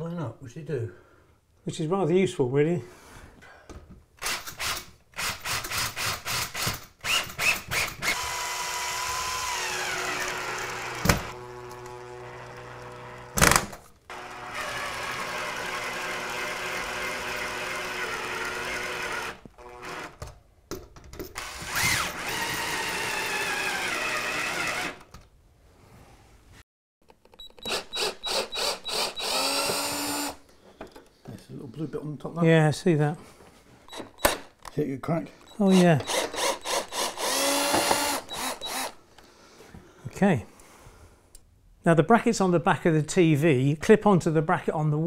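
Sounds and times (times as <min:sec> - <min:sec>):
cordless drill driving screws: 0:04.2 - 0:20.3, 0:21.4 - 0:25.2, 0:27.5 - 0:30.4, 0:35.5 - 0:39.0.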